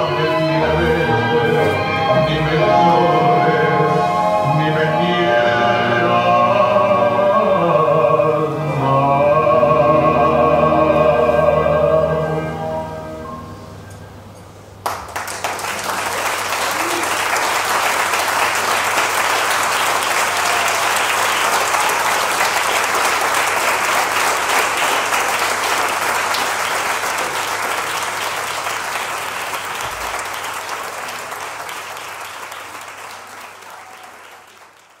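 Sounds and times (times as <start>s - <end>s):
audience applauding: 14.8s - 35.0s.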